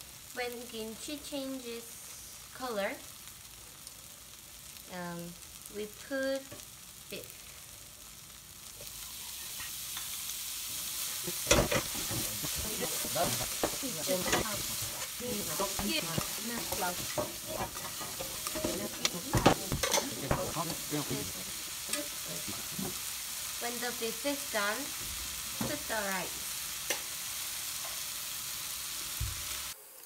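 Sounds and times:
meat sizzling in a frying pan: 0.0s - 30.0s
spatula scraping and clicking: 11.5s - 20.8s.

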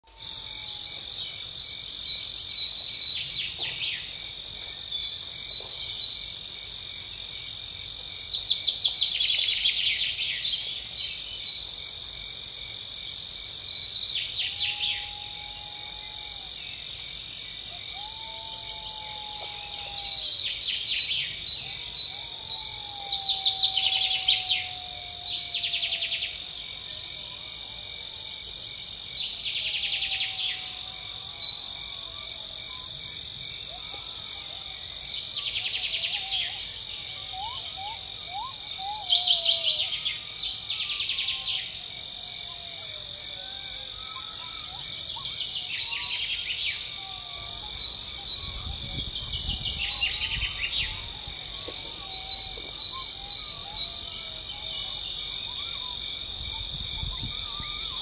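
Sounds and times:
insects chorus: 0.0s - 58.0s
faint whistled bird calls: 43.4s - 58.0s.

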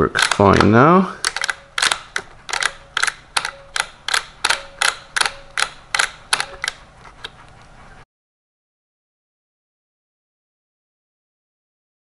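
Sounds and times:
teletype mechanism clicking: 0.0s - 6.8s.

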